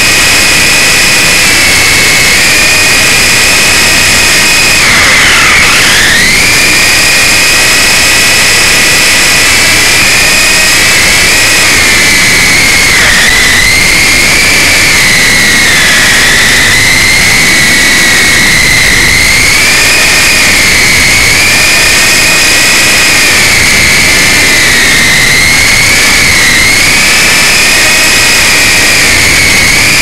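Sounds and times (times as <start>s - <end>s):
rc helicopter motor whine: 0.0s - 30.0s
rotor rushing hiss: 4.8s - 6.9s.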